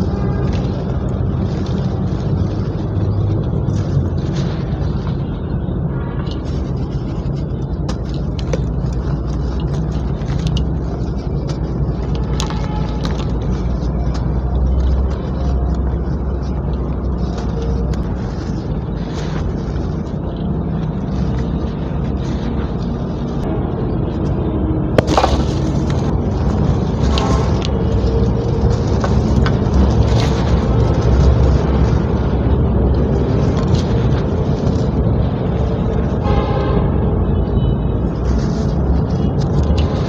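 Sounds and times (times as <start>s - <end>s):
steady low rumble: 0.0s - 40.0s
cement crumbling in hands: 25.0s - 31.6s.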